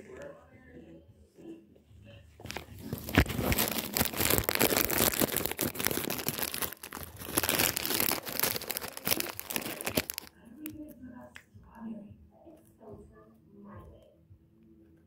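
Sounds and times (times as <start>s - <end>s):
crinkling and rustling: 2.4s - 10.8s.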